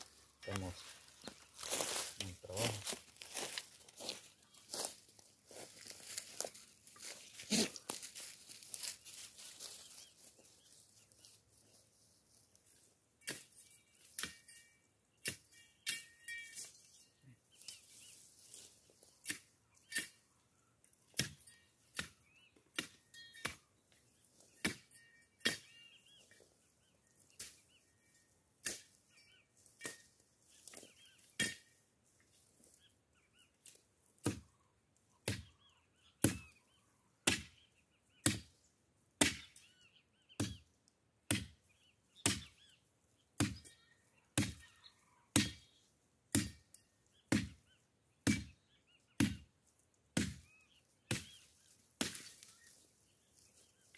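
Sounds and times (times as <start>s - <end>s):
machete chopping woody brush: 21.1s - 23.6s, 28.6s - 29.0s, 34.2s - 34.4s, 35.2s - 35.6s, 36.2s - 36.6s, 37.2s - 38.6s, 39.2s - 39.6s, 40.3s - 40.6s, 41.3s - 41.6s, 42.2s - 42.6s, 43.4s - 43.7s, 44.4s - 44.7s, 45.3s - 46.6s, 47.3s - 47.6s, 48.2s - 48.6s, 49.2s - 49.5s, 50.1s - 50.4s, 51.1s - 52.6s.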